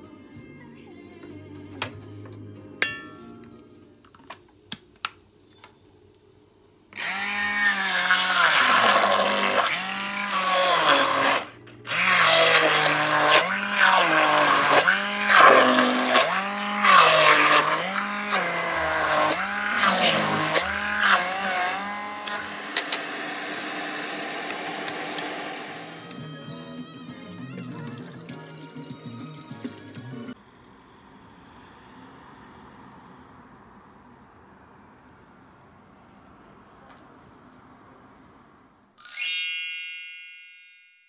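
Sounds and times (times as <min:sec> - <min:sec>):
hand blender running: 0:07.0 - 0:29.0
blender shaft clicking on: 0:22.2 - 0:26.2.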